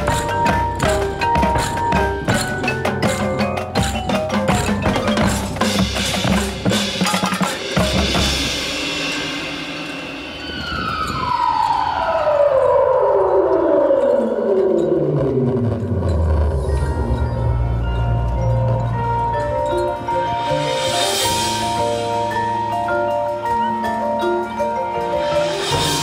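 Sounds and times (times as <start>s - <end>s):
drum strokes: 0.0s - 13.1s
marimbas: 0.0s - 26.0s
percussion ensemble playing: 0.0s - 26.0s
falling electronic sweep: 9.1s - 17.7s.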